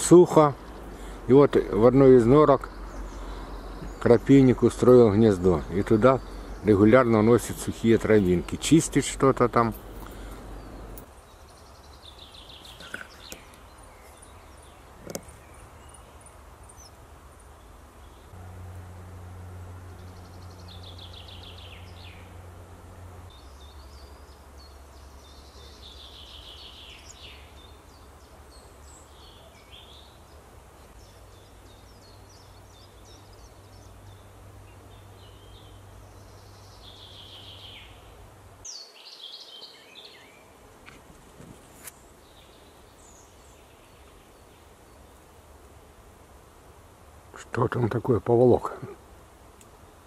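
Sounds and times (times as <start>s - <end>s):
songbirds singing trilled phrases: 0.0s - 18.4s, 19.5s - 22.6s, 23.2s - 40.6s, 41.9s - 45.6s
low steady hum: 0.0s - 38.7s.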